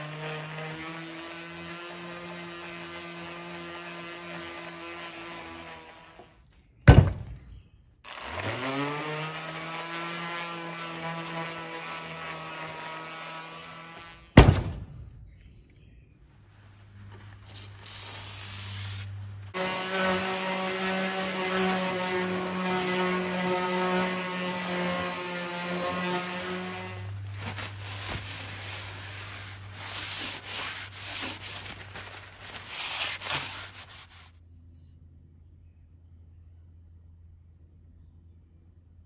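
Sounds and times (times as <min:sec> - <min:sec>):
hand sanding with sandpaper: 0:00.0 - 0:06.2, 0:08.3 - 0:14.2, 0:17.9 - 0:34.4
orbital sander whining on steel: 0:00.0 - 0:06.4, 0:08.1 - 0:14.4, 0:18.3 - 0:31.6.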